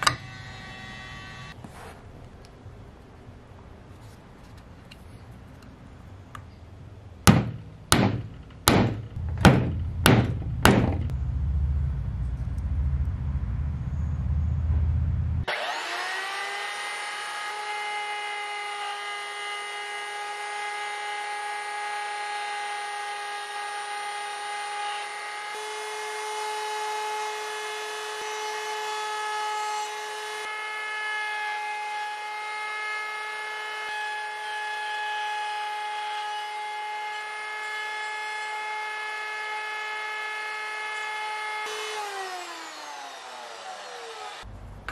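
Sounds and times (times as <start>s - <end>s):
router whining: 0.0s - 1.6s, 15.4s - 44.5s
low rumble: 7.4s - 15.5s.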